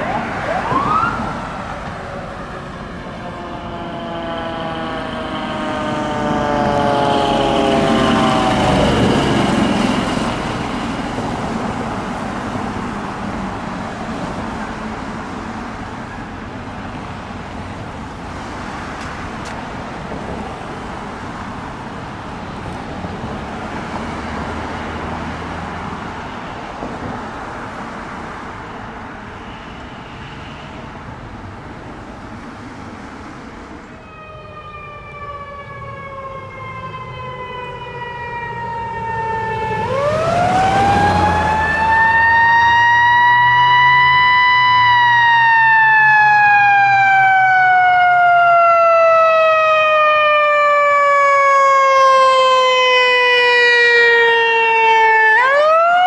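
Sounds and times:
ambulance siren falling wail: 0.0s - 12.6s, 34.0s - 56.0s
faint distant siren: 0.0s - 13.6s, 23.8s - 27.2s, 28.6s - 31.0s, 33.7s - 56.0s
fire engine driving off: 0.0s - 56.0s.

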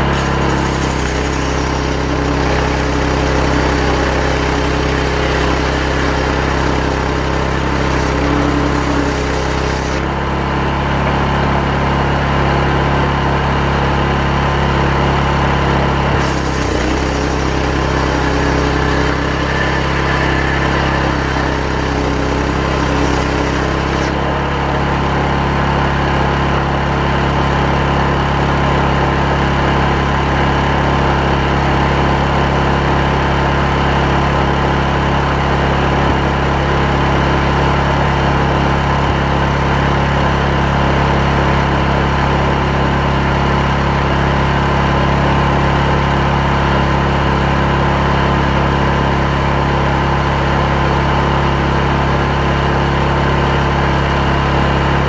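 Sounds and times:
chainsaw cutting log: 0.0s - 10.3s, 15.9s - 25.7s.

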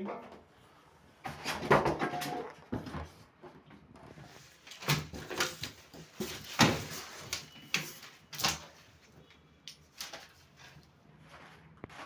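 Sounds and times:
polystyrene pieces knocking and scraping: 4.2s - 8.9s.

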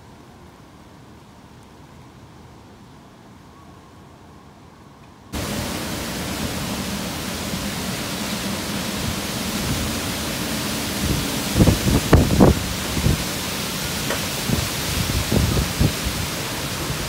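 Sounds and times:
wind: 0.0s - 17.0s
heavy rain downpour: 5.3s - 17.0s.

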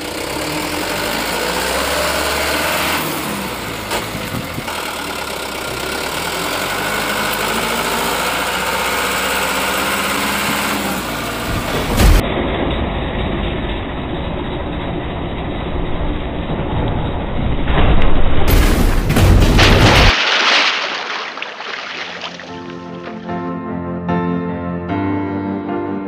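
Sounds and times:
truck engine revving: 0.0s - 17.7s.

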